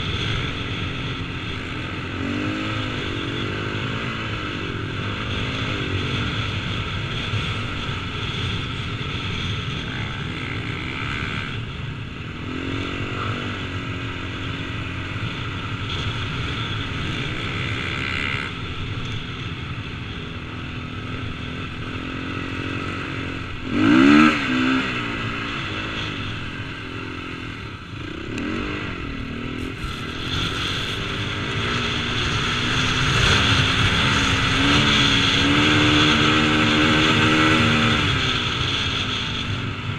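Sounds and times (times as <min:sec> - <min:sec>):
motocross bike engine revving: 0:22.5 - 0:26.1, 0:28.0 - 0:39.5.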